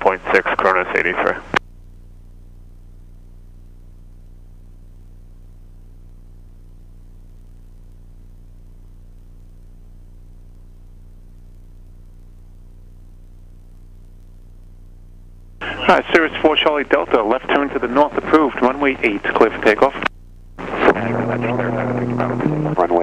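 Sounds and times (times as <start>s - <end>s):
faint radio hiss: 0.0s - 23.0s
light plane engine drone: 20.6s - 23.0s.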